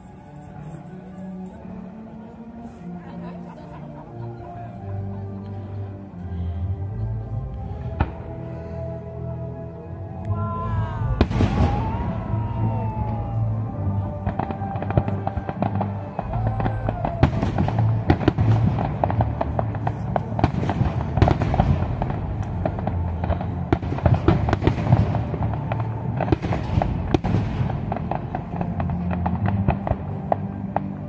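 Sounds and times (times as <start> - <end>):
music with deep pulsing bass: 0.0 - 31.0
fireworks bursting: 11.0 - 31.0.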